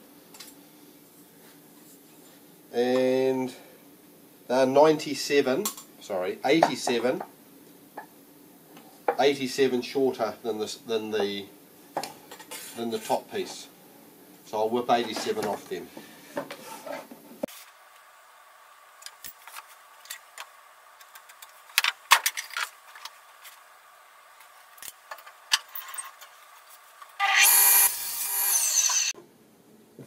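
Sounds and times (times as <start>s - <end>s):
table saw cutting a board: 27.2s - 29.2s.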